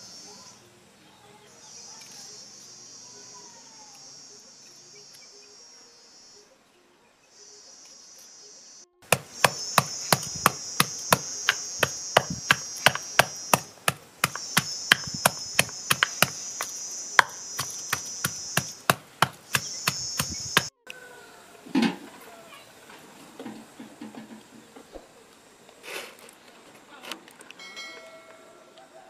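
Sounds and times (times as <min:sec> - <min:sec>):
high insect trill: 0:00.0 - 0:00.8, 0:01.4 - 0:06.5, 0:07.4 - 0:20.8
wooden pestle pounding in mortar: 0:09.1 - 0:20.7.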